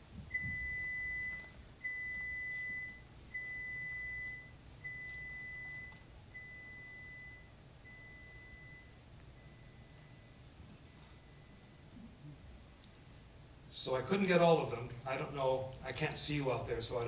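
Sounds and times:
test tone beeps: 0.3 - 10.4.

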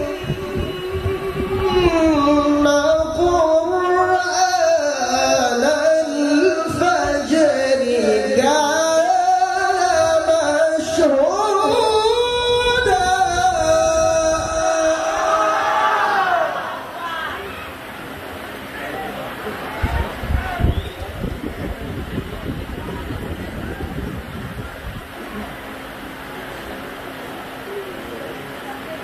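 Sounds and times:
man reciting melodically into microphone: 0.0 - 15.6.

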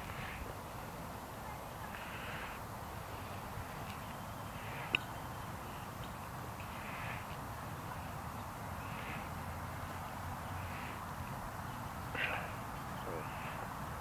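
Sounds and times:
outdoor background noise: 0.0 - 14.0
faint animal calls: 12.1 - 13.7.

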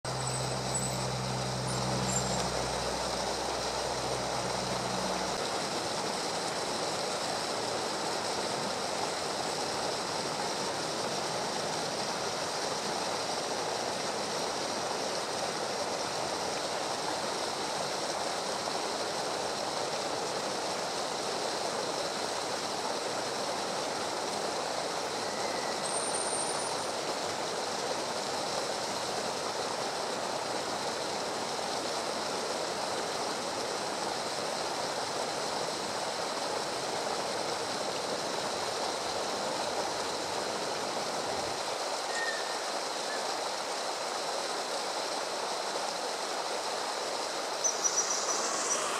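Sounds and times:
high thin chirp: 0.1 - 5.4, 42.1 - 43.2, 47.6 - 48.9
stream water flowing: 0.1 - 48.9.

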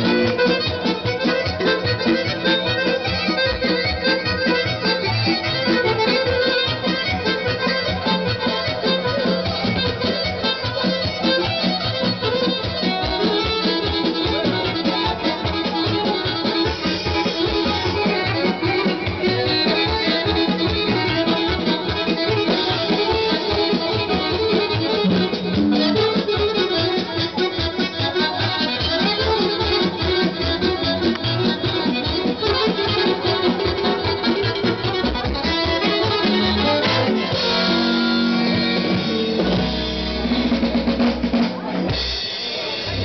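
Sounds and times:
accordions playing fast melody: 0.0 - 43.0
guitar: 0.0 - 43.0.

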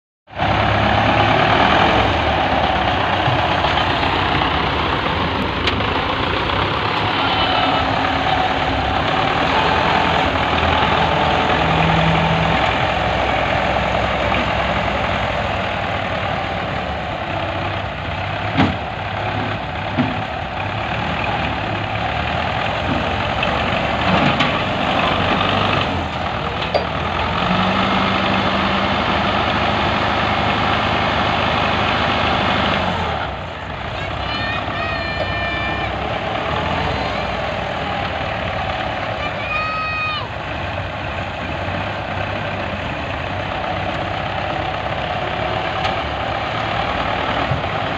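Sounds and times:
loader scooping a load: 0.3 - 47.9
tractor diesel engine running: 0.3 - 47.9.

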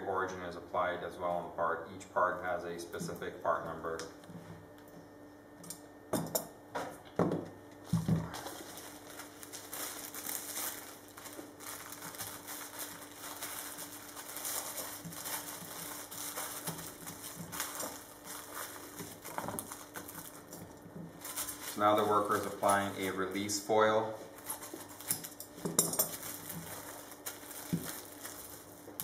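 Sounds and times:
plastic foil crinkling: 7.9 - 29.0.

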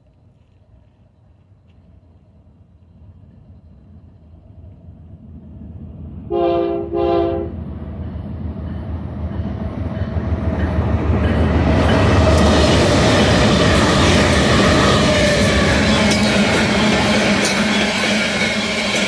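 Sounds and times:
locomotive engine and wheels rumbling: 0.0 - 19.0
train horn blasts: 6.2 - 7.7.

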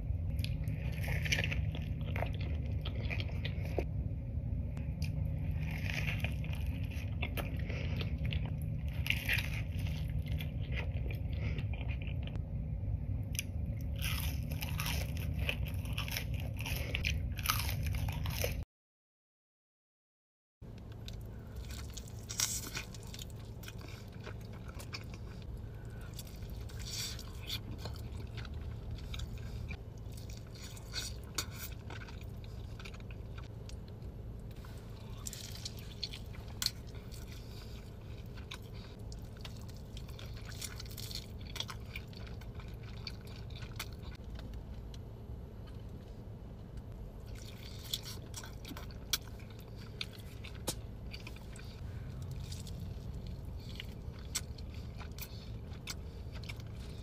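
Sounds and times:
steady low hum: 0.0 - 18.6, 20.6 - 57.0
chewing with wet mouth clicks: 20.7 - 45.0, 46.8 - 57.0.

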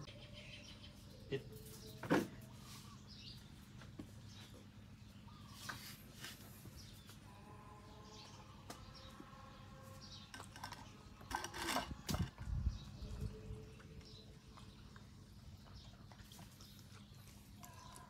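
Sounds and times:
low steady hum: 0.0 - 18.0
puppy chewing wetly: 14.2 - 18.0.

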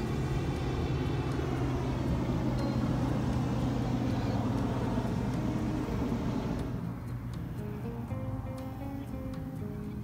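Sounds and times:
deep hum: 0.0 - 7.6
propane burner roaring: 0.0 - 10.0.

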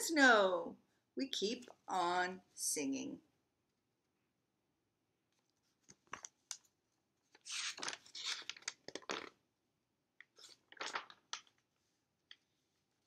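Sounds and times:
book pages rustling: 5.3 - 9.4, 10.2 - 13.0.

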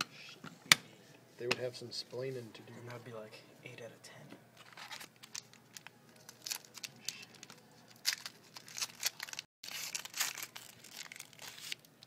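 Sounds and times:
foil wrapper tearing and crinkling: 4.6 - 11.9.

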